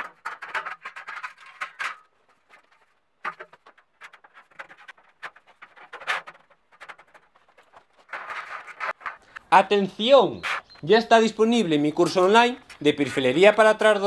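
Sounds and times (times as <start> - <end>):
sheet steel studs scraping and clinking: 0.0 - 9.5.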